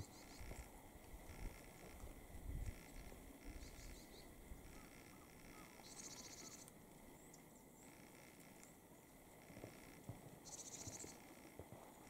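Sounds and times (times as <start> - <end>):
buzzy rasping bird call: 2.8 - 6.7.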